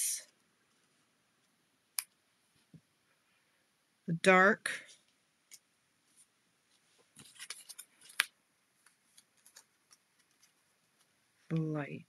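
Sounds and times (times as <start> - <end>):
paper rustling: 6.1 - 11.2.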